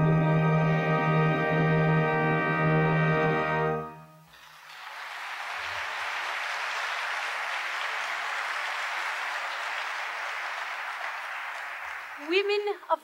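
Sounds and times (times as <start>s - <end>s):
held music chord: 0.0s - 4.2s
audience applause: 4.3s - 12.9s.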